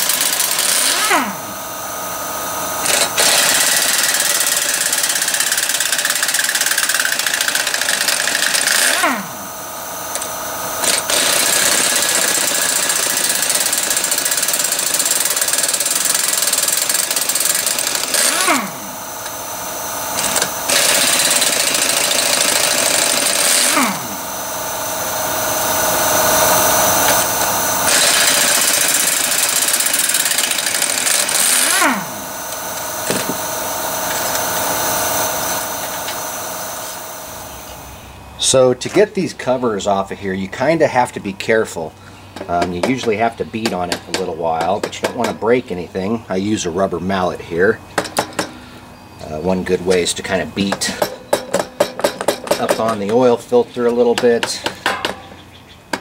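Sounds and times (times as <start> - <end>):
air wrench running: 0.0 - 40.0, 41.9 - 55.3.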